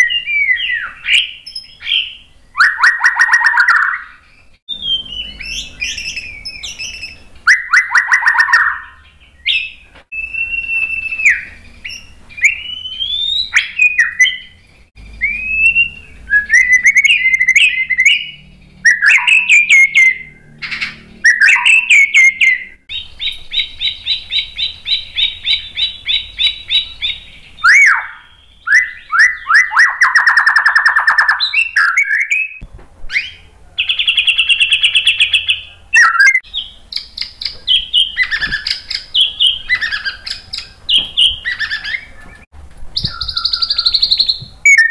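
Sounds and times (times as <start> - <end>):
songbird singing varied song: 0.0 - 44.9.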